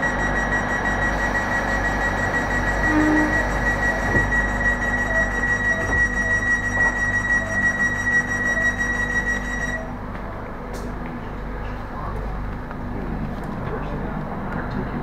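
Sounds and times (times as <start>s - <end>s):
soft repeating beep: 0.0s - 9.9s
high-pitched warning tone: 0.0s - 10.0s
sliding door shutting: 2.7s - 4.5s.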